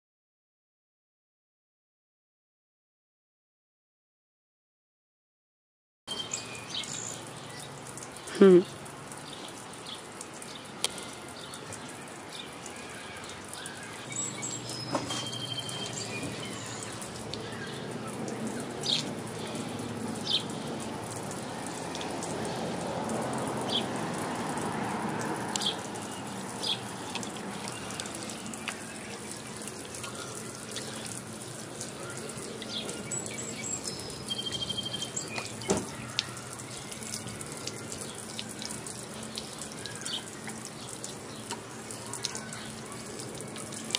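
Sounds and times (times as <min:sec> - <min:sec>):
sprinkler spraying water on pavement: 0:06.1 - 0:43.9
bird chirps: 0:13.2 - 0:17.8, 0:32.7 - 0:35.8.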